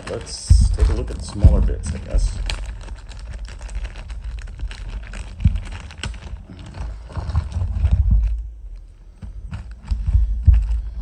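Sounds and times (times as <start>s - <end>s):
dull handling bumps: 0.0s - 2.6s
plastic bag crinkling: 0.0s - 11.0s.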